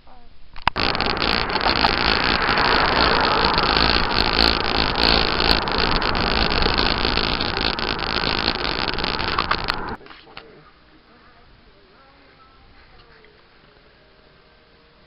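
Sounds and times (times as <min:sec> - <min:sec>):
wind rushing over microphone: 0:00.6 - 0:10.0.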